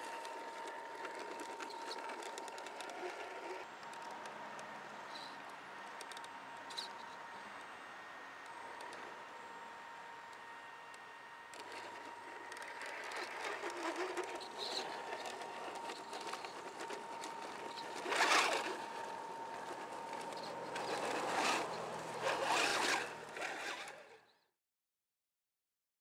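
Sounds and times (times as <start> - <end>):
electric motor whining: 11.3 - 24.3
tires scrabbling on dirt and stones: 12.7 - 24.2.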